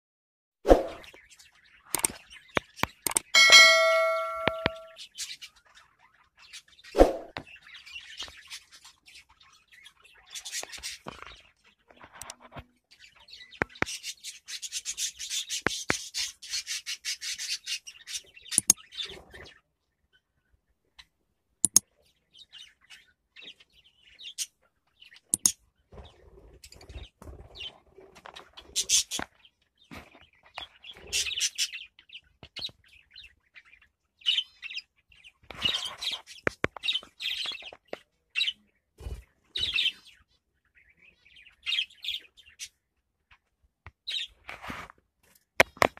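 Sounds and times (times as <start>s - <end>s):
sharp clicks: 2.0s - 2.2s, 3.0s - 3.3s, 21.6s - 21.8s.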